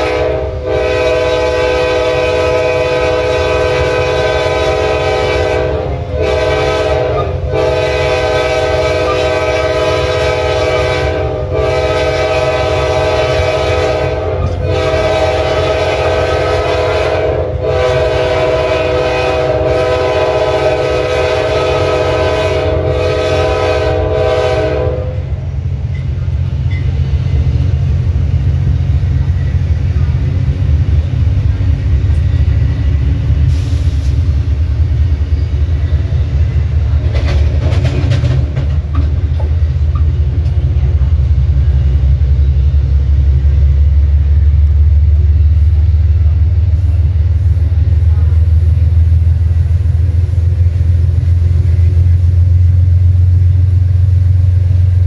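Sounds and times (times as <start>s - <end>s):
locomotive air horn blasts: 0.0s - 25.4s
low rumble of train running: 0.0s - 55.0s.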